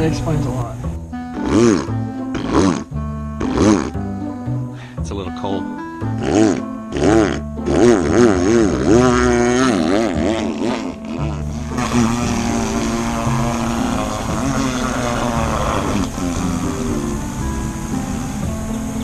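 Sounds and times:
chainsaw cutting wood: 1.3 - 4.0, 6.2 - 18.5.

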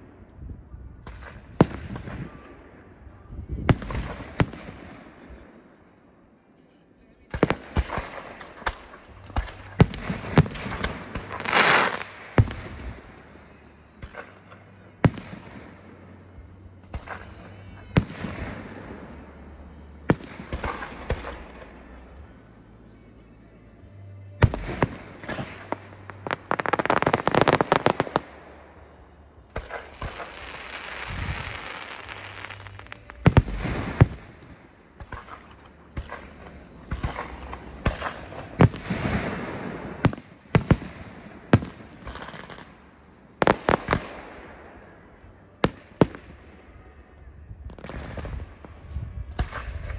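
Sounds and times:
fireworks crackling: 7.3 - 19.0, 24.4 - 46.6
fireworks shells bursting: 7.4 - 13.3, 24.4 - 42.8.

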